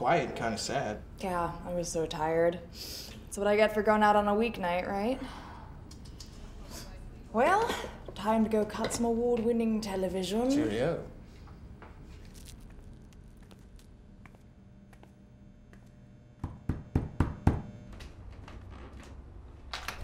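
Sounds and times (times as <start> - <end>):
sharp knocks on a door: 16.4 - 17.7.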